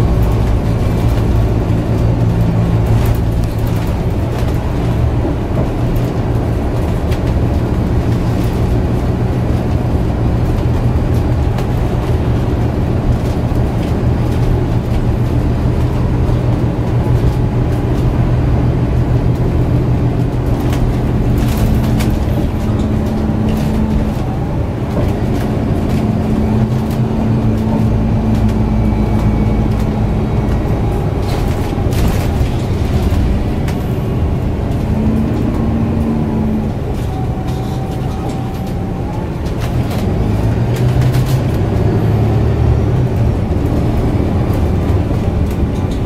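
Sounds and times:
bus engine humming: 0:00.0 - 0:46.0
road noise: 0:00.0 - 0:46.0.

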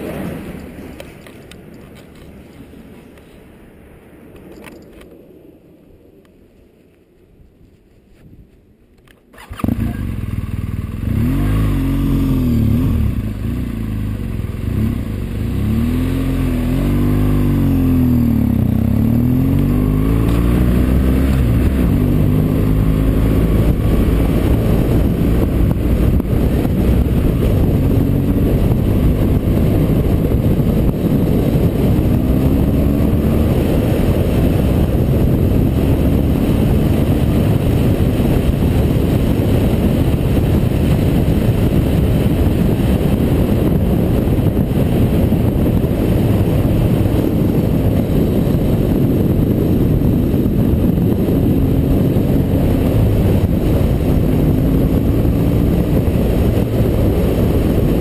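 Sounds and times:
road and wind noise: 0:00.0 - 0:58.0
motorcycle engine accelerating: 0:09.3 - 0:58.0.

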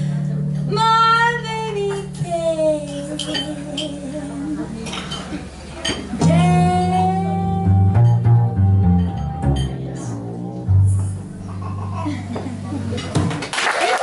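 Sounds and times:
acoustic guitar: 0:00.0 - 0:13.4
plucked double bass: 0:00.0 - 0:13.4
woman singing: 0:00.7 - 0:05.0, 0:06.2 - 0:10.4.

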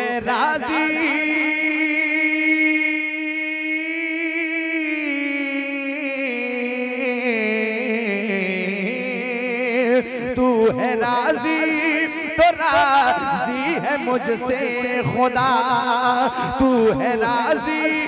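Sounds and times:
man singing: 0:00.0 - 0:18.0.

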